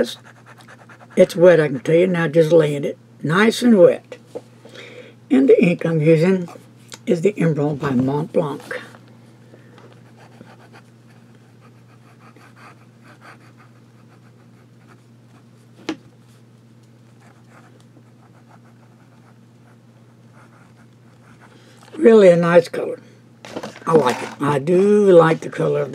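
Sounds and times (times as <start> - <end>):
pen nib scratching on paper: 0.0 - 1.4
steady low hum: 0.0 - 25.9.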